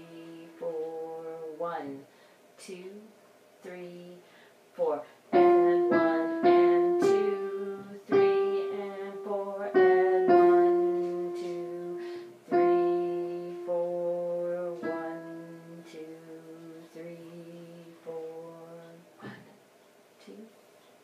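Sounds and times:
piano chords ringing: 0:05.4 - 0:16.6.

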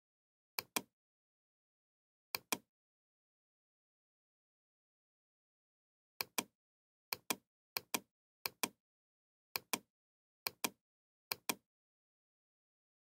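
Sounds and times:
computer mouse clicking: 0:00.6 - 0:00.9, 0:02.4 - 0:02.7, 0:06.2 - 0:06.5, 0:07.1 - 0:08.8, 0:09.6 - 0:09.9, 0:10.5 - 0:11.6.

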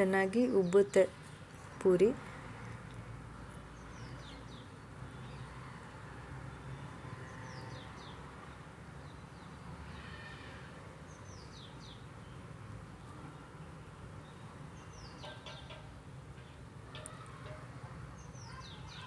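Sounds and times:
bird chirping: 0:03.4 - 0:05.5, 0:11.1 - 0:12.4, 0:14.2 - 0:17.6.

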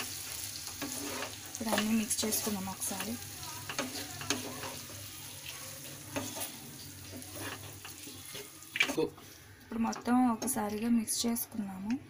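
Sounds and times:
tomatoes sizzling in hot oil: 0:00.0 - 0:09.1
spatula scraping a pan: 0:00.1 - 0:08.6.

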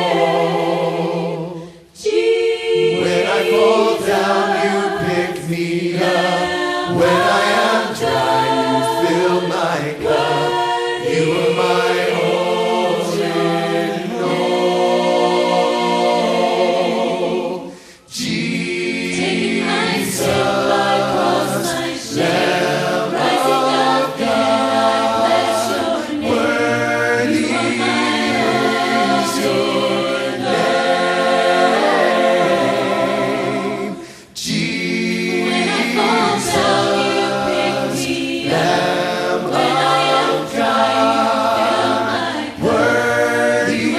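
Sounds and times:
choir singing: 0:00.0 - 0:43.9.

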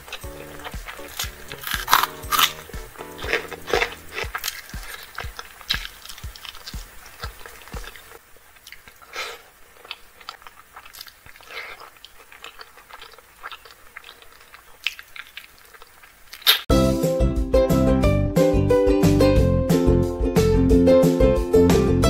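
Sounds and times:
person chewing food: 0:00.0 - 0:16.7.

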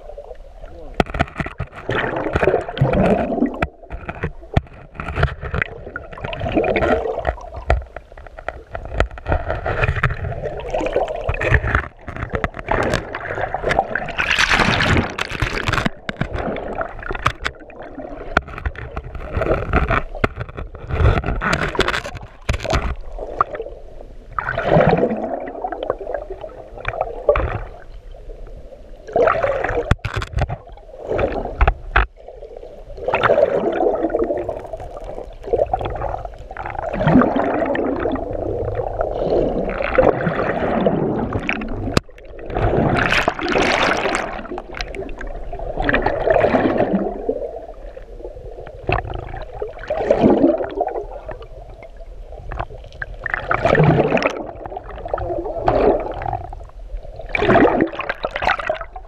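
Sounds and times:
muffled underwater water sloshing: 0:00.0 - 0:59.0
sharp clicks and knocks: 0:01.0 - 0:10.3, 0:11.1 - 0:17.6, 0:18.3 - 0:23.5, 0:29.8 - 0:30.6, 0:31.6 - 0:32.1.

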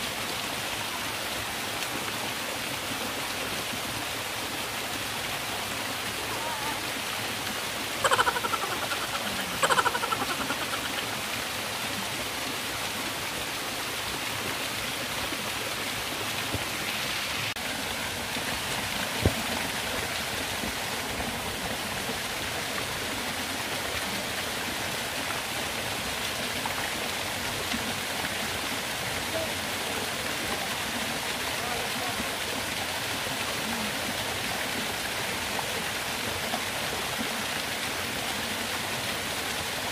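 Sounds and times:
waterfall rushing: 0:00.0 - 0:39.9
person calling out: 0:06.2 - 0:06.9.

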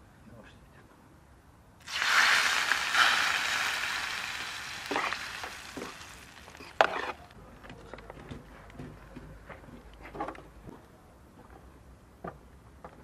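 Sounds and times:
eggs sizzling on hot tray: 0:01.8 - 0:07.3.

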